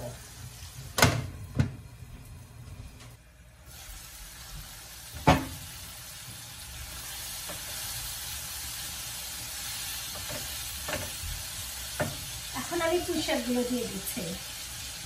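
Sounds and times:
potatoes sizzling in a frying pan: 0.0 - 15.0
spatula tapping a pan: 10.1 - 11.2, 11.9 - 12.3.

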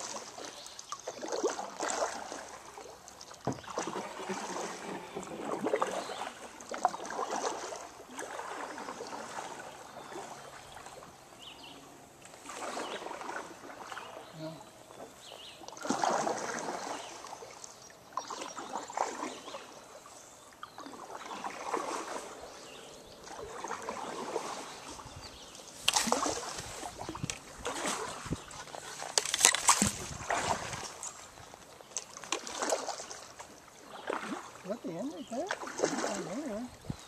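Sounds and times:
kayak paddle strokes in water: 0.0 - 37.0
water dripping off paddle: 15.6 - 19.7, 23.2 - 34.8.

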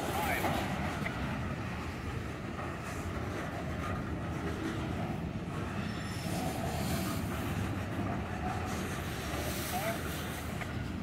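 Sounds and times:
train wheels rumbling on rails: 0.0 - 11.0
faint high wheel squeal: 5.6 - 7.4.

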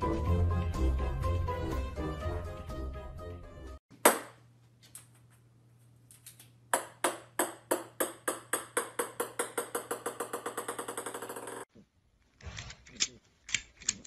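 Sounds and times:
small ball bouncing on hardwood: 6.7 - 11.6.

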